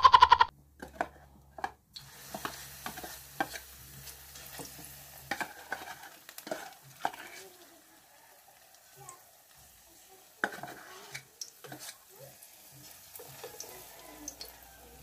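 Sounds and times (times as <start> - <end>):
batter sizzling in hot oil: 1.9 - 15.0.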